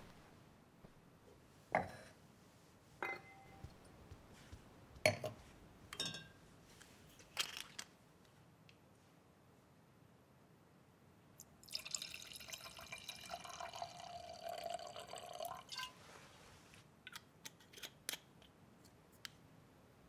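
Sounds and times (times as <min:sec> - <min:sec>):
glassware clinking: 0:03.0 - 0:03.7, 0:05.1 - 0:06.4.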